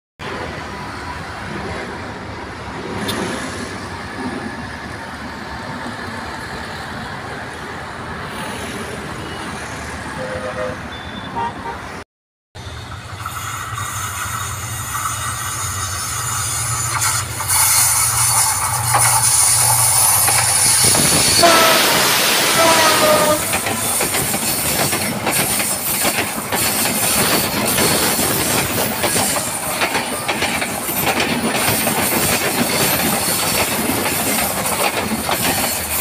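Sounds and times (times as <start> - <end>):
road traffic: 0.2 - 36.0
car horn toots: 10.2 - 11.9, 21.4 - 23.6
diesel locomotive engine hum: 12.6 - 36.0.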